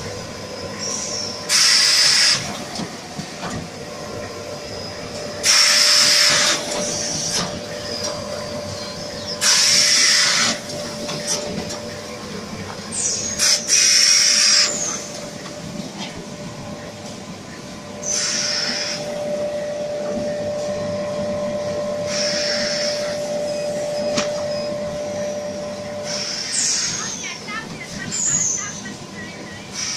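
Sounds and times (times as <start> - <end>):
machine hissing bursts: 0.7 - 2.7, 5.3 - 8.0, 9.3 - 11.6, 12.9 - 15.1, 18.0 - 19.2, 22.0 - 23.2, 26.0 - 27.2.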